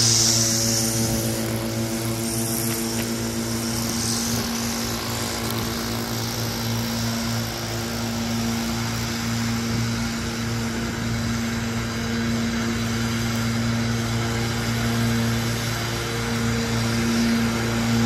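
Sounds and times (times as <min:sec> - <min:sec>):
air hiss: 0:00.0 - 0:09.0
small two-stroke engine idling: 0:00.0 - 0:18.0.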